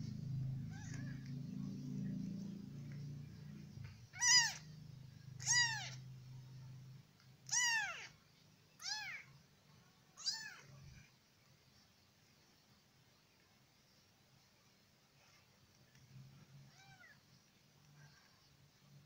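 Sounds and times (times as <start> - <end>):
kitten mewing: 0.6 - 1.4, 4.1 - 4.7, 5.4 - 6.0, 7.4 - 8.2, 10.2 - 10.7.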